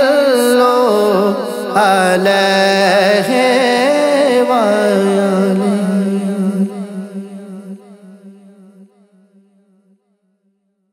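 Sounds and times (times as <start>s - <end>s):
hummed vocal drone: 0.0s - 8.5s.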